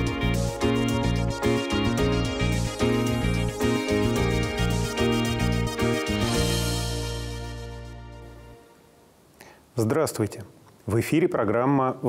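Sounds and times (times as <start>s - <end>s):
instrumental theme music with bass: 0.0s - 9.0s.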